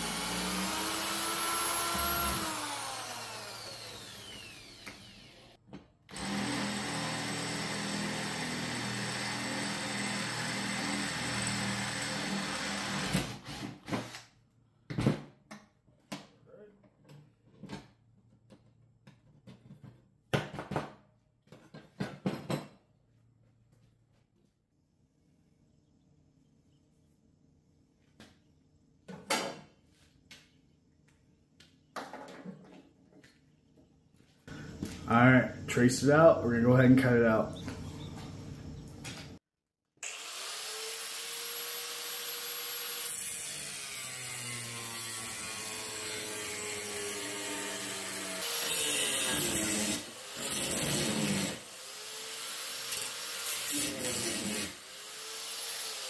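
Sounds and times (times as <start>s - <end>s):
power tool cutting steel: 0.0s - 13.8s, 40.0s - 56.0s.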